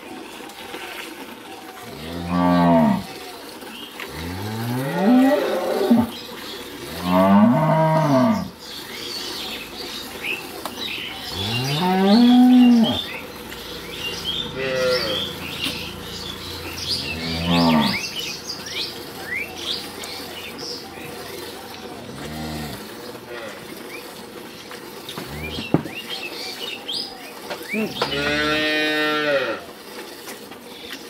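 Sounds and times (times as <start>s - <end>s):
cattle mooing: 1.8s - 3.2s, 4.1s - 6.2s, 6.9s - 8.5s, 11.2s - 13.2s, 14.1s - 18.4s, 21.9s - 23.7s, 25.2s - 25.7s, 27.8s - 29.7s.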